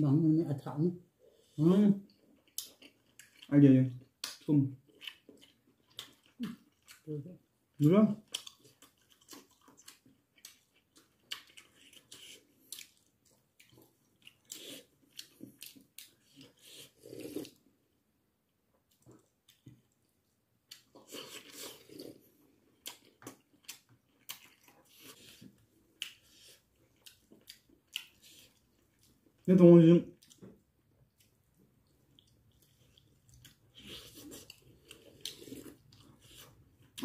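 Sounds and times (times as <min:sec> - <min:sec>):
wet chewing and lip smacking: 0:02.1 - 0:03.5, 0:04.1 - 0:07.1, 0:08.2 - 0:17.6, 0:20.7 - 0:29.4, 0:30.2 - 0:37.0.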